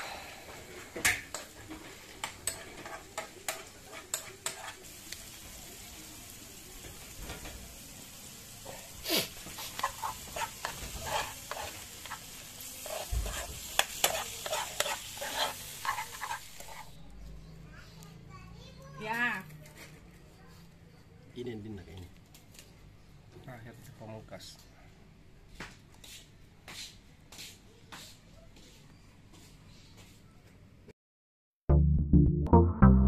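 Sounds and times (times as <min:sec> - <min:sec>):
food sizzling in a frying pan: 0:00.3 - 0:17.0
metal spoon scraping a pan: 0:02.2 - 0:04.9, 0:08.6 - 0:17.0.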